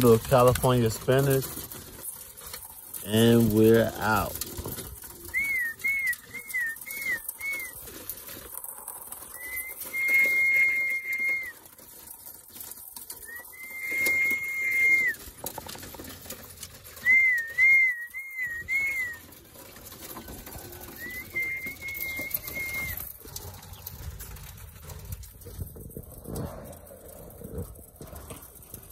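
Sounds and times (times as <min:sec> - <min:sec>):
high-pitched whistle calls: 0:05.3 - 0:07.8, 0:09.3 - 0:11.6, 0:13.3 - 0:15.2, 0:17.0 - 0:19.2, 0:21.0 - 0:23.0.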